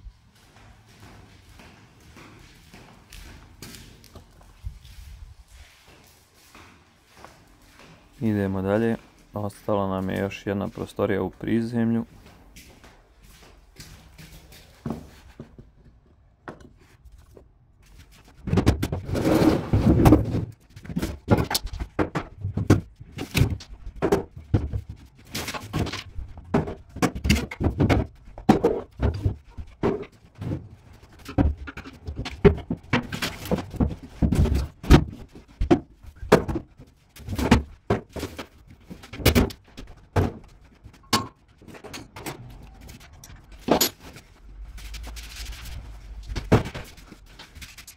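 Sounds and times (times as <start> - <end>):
furniture knocking and clattering: 18.4 - 42.3.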